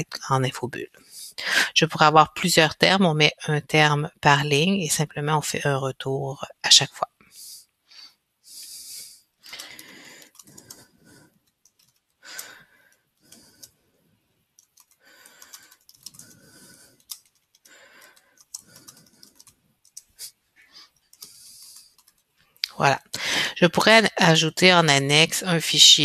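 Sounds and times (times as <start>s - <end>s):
keyboard keys clicking: 9.6s - 10.8s, 11.4s - 12.1s, 14.6s - 16.4s, 17.0s - 20.2s.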